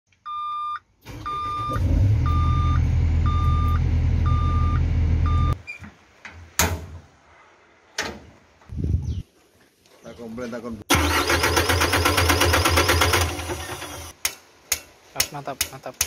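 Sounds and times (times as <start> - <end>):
diesel engine cranking: 1.0 - 5.6, 10.9 - 14.1.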